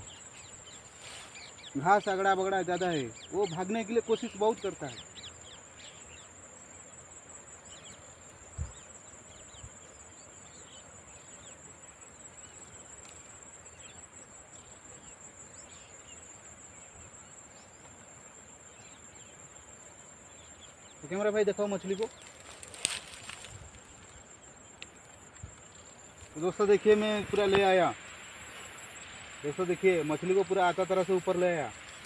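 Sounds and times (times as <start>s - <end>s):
insects trilling: 0.0s - 32.0s.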